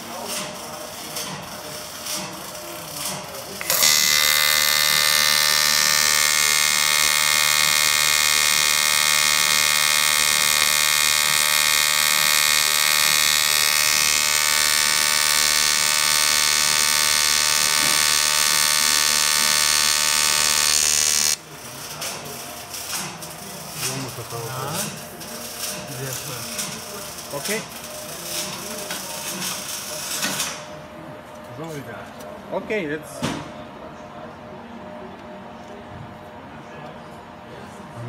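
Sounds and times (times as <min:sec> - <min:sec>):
welding arc buzzing: 0:03.4 - 0:21.4.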